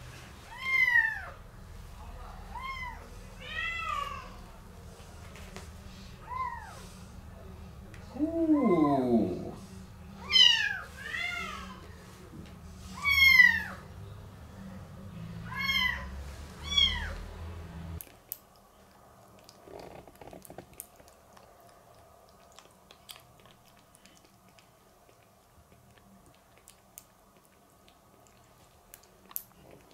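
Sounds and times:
low steady hum: 0.0 - 29.9
kitten mewing: 8.2 - 9.6.

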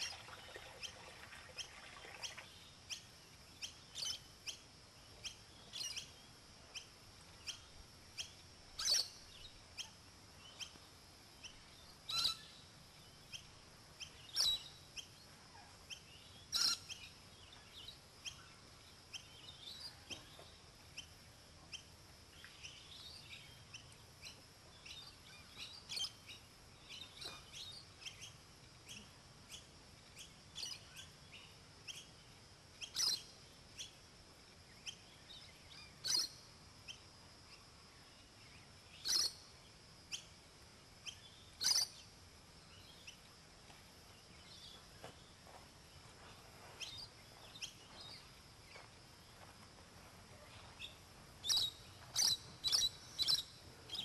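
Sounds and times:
parrots chirping: 41.6 - 41.9.

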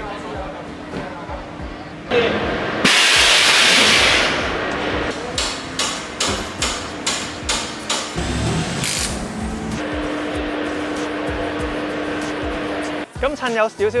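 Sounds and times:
loud burst of hiss: 2.8 - 4.6
hammer striking metal: 2.9 - 4.3, 5.1 - 8.4.

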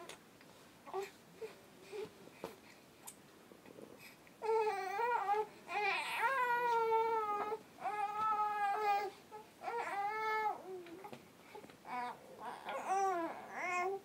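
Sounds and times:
baby crying: 4.4 - 10.8, 11.9 - 14.0.

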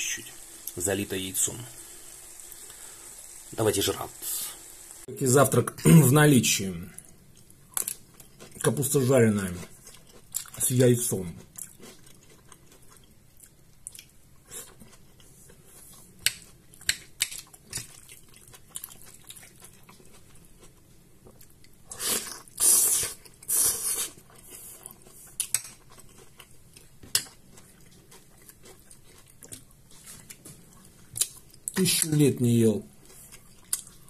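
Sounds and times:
chewing: 9.6 - 10.6, 11.4 - 31.8, 33.0 - 34.0.

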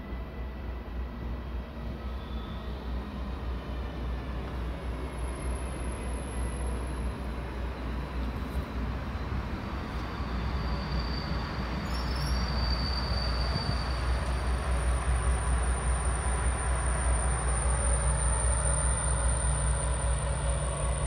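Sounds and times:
train wheels rumbling on rail: 0.0 - 21.0
thin high squeal: 10.2 - 14.4.

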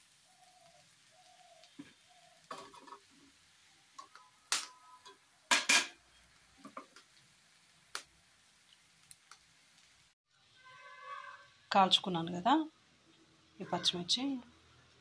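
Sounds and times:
metal kitchenware clattering: 2.5 - 3.1, 4.0 - 6.0.

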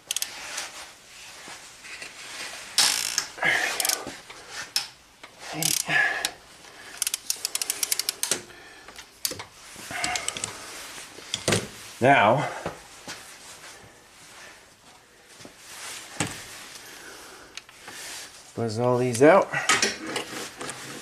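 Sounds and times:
ratchet clicks: 0.0 - 0.3, 2.8 - 4.0, 5.6 - 5.9, 7.0 - 8.4, 10.0 - 10.5.

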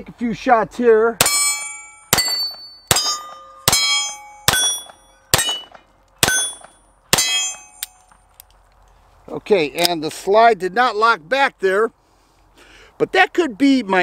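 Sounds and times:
pistol shots: 1.2 - 7.9
steel plate target ringing: 1.2 - 8.1.

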